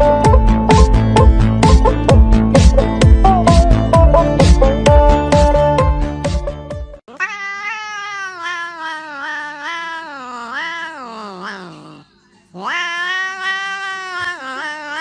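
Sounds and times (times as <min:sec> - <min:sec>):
cat yowling: 0:07.1 - 0:15.0.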